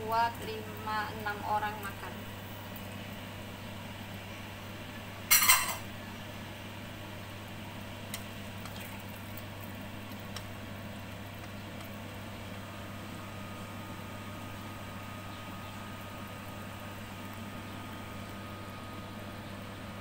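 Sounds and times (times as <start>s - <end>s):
steady low hum: 0.0s - 20.0s
kitchenware clatter: 5.3s - 5.9s.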